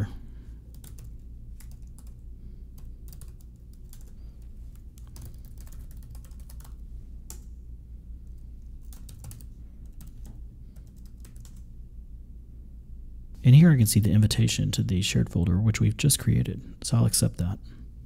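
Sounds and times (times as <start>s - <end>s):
steady low hum: 0.0s - 18.0s
keyboard typing clicks: 0.7s - 2.2s, 2.8s - 7.5s, 8.3s - 11.6s.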